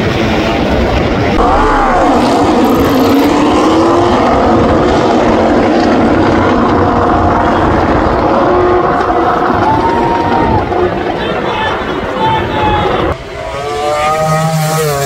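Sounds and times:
racing motorcycles passing at high revs: 0:01.4 - 0:09.5, 0:13.2 - 0:15.0.

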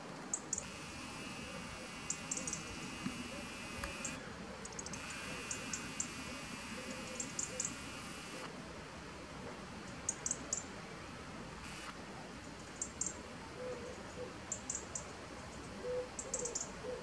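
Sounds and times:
faint low coos: 0:13.3 - 0:17.0.

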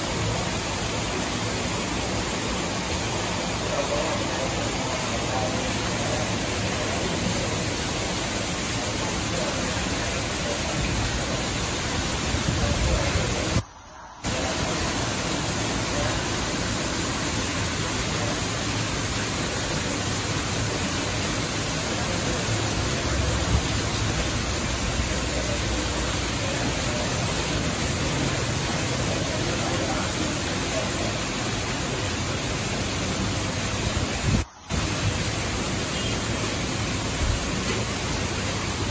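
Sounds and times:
water splashing into pond: 0:00.0 - 0:38.9.

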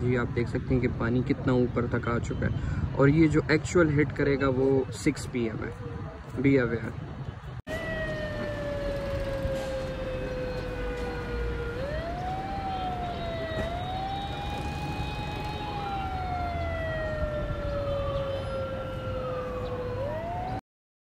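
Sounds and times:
siren wailing: 0:07.7 - 0:20.6.

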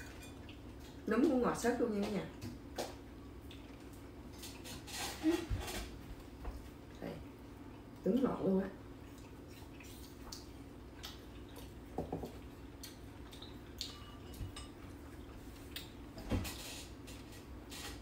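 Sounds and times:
utensils clinking on ceramic bowls: 0:00.0 - 0:00.5, 0:13.8 - 0:14.8
faint steady hum: 0:00.0 - 0:18.0.

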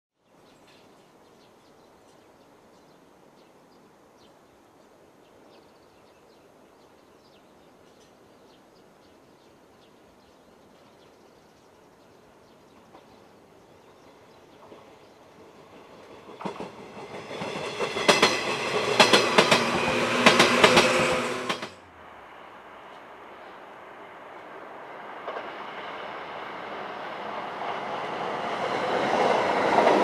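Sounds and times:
steady outdoor hiss: 0:00.2 - 0:30.0
approaching electric train: 0:11.5 - 0:30.0.

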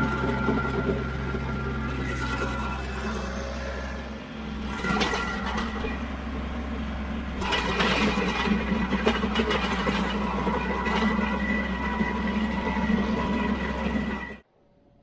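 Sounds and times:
high whine of spinning cutter: 0:00.0 - 0:14.4
tractor engine hum: 0:00.0 - 0:14.4.

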